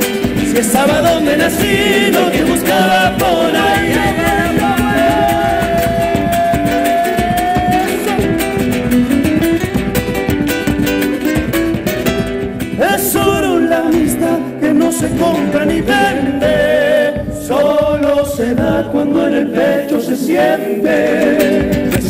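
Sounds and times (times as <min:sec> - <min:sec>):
group singing in harmony: 0:00.0 - 0:08.1, 0:13.4 - 0:22.0
bass drums: 0:00.0 - 0:19.6, 0:21.1 - 0:22.0
strummed acoustic guitars: 0:00.0 - 0:22.0.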